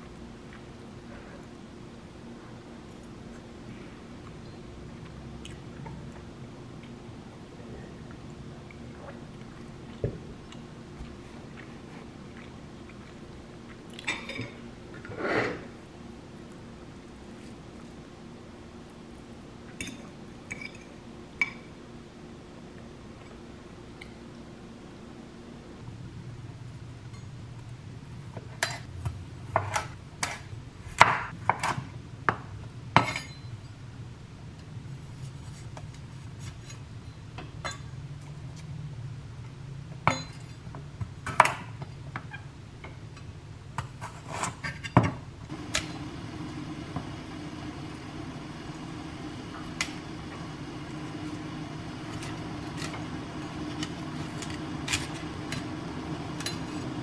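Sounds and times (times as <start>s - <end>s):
low steady hum: 0.0s - 57.0s.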